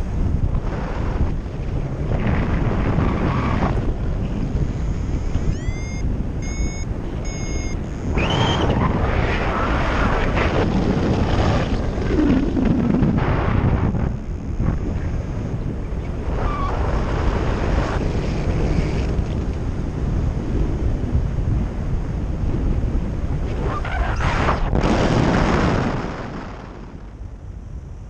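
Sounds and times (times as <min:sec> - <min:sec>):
wind buffeting microphone: 0:00.0 - 0:28.0
short electronic beeps: 0:04.5 - 0:08.8, 0:13.9 - 0:16.7.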